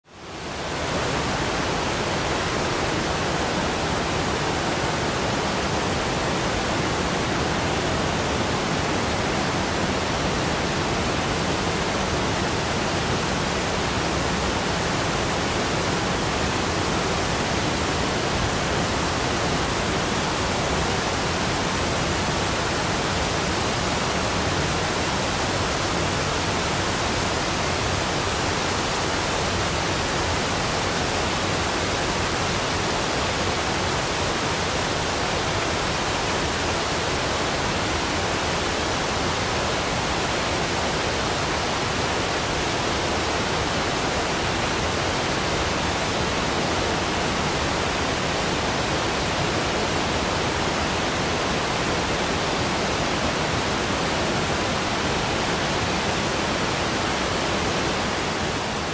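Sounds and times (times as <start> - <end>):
waterfall roaring: 0.1 - 58.9.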